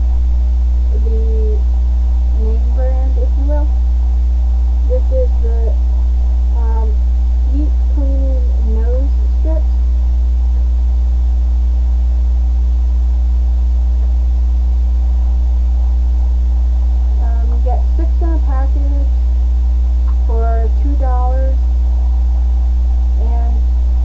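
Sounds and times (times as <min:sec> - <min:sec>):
low electrical mains hum: 0:00.0 - 0:24.0
faint woman's voice: 0:00.9 - 0:01.6, 0:02.4 - 0:03.7, 0:04.9 - 0:05.8, 0:23.2 - 0:23.6.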